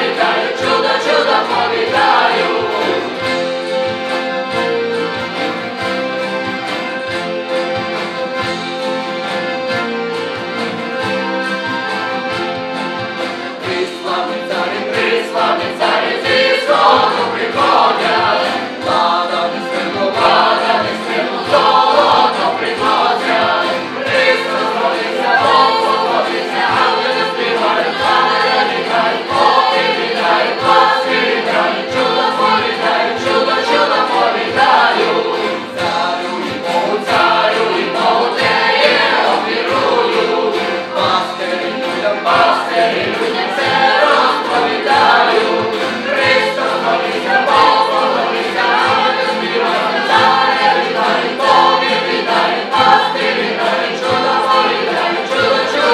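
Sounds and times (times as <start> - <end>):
group of voices singing: 0.0 - 7.4, 10.9 - 55.9
band with accordion and guitar: 0.0 - 55.9.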